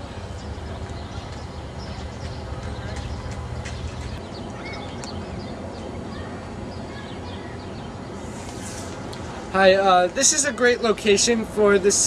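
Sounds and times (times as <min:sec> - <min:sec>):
small birds chirping: 0:00.0 - 0:09.5.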